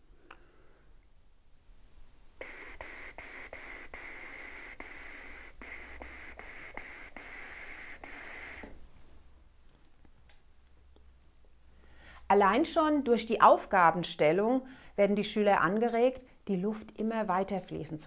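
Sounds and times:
breathy hiss through mouthpiece: 2.4 - 8.8
tongue strokes: 2.4 - 8.8.

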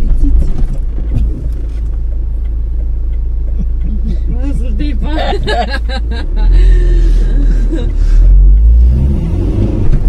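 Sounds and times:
car road and engine rumble: 0.0 - 10.0
person speaking: 3.9 - 8.0.

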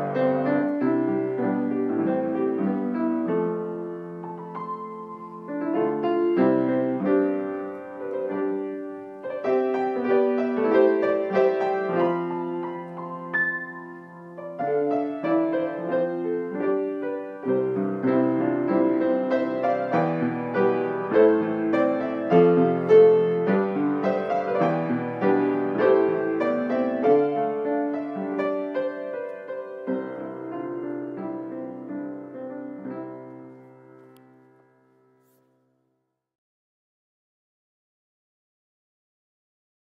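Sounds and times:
gentle instrumental music: 0.0 - 35.6.

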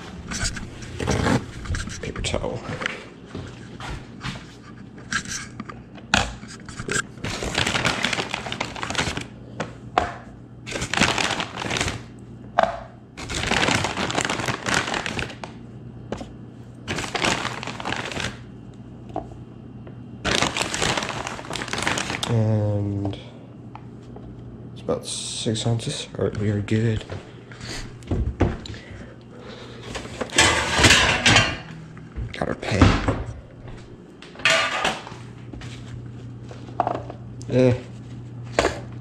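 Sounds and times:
plastic bag crinkling: 6.9 - 9.3, 10.7 - 12.1, 13.2 - 15.6, 16.9 - 18.5, 20.2 - 22.4.

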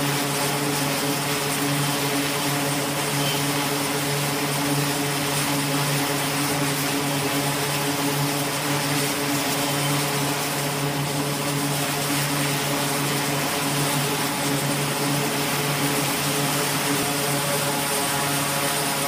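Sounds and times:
low propeller drone: 0.0 - 19.0
turbine hiss: 0.0 - 19.0.

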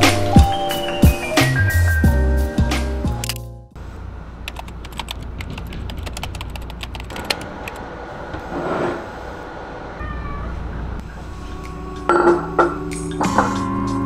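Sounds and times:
cat meowing: 9.9 - 10.8.

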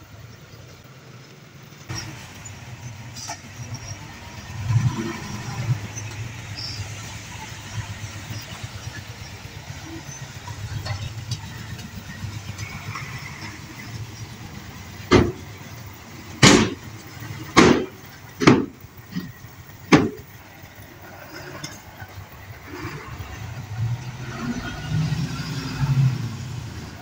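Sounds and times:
diesel truck engine running: 0.0 - 27.0
loud bangs of tipping load: 15.0 - 15.8, 16.4 - 20.4.

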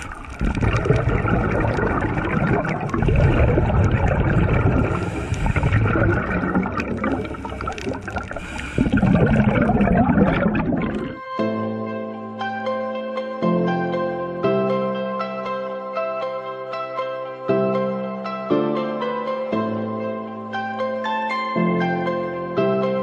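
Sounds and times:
underwater air bubbles: 0.0 - 11.2.

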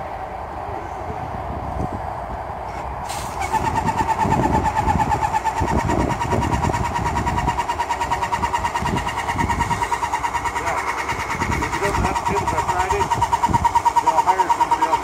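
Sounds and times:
paint sprayer pump whining: 3.1 - 15.0.

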